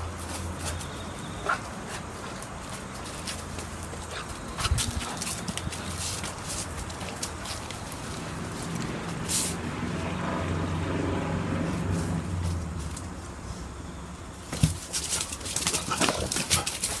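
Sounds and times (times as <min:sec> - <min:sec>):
puppy claws clicking on concrete: 0:01.9 - 0:09.6, 0:14.5 - 0:17.0.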